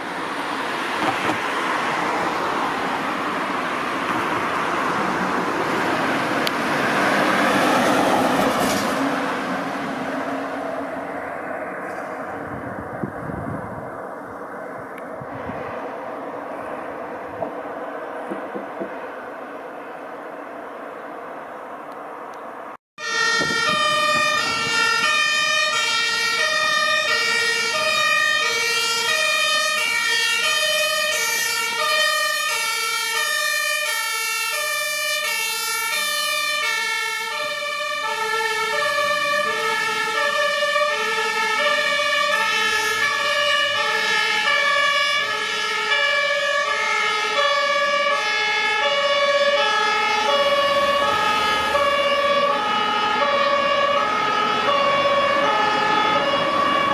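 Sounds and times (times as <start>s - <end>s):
fire engine two-tone sirens: 0.0s - 56.9s.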